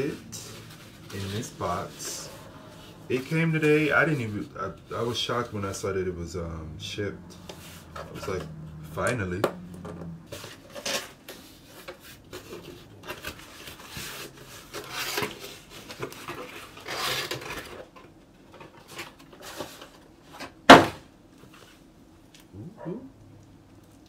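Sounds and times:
cardboard flaps scraping: 0.0 - 5.4.

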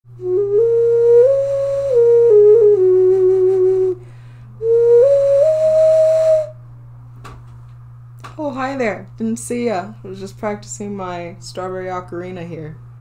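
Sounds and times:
ocarina playing breathy notes: 0.1 - 6.6.

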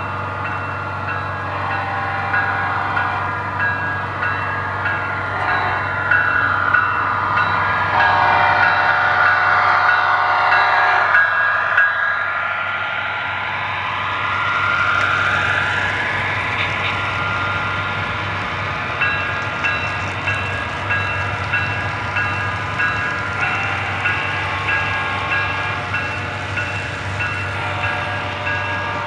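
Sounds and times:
model train running hum: 0.0 - 29.0.

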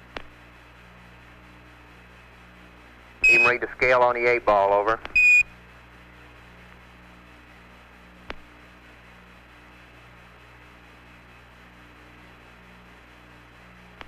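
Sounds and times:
low hum: 0.0 - 14.0
high radio beep: 3.2 - 4.5, 5.2 - 5.5
radio hiss: 3.2 - 5.4.

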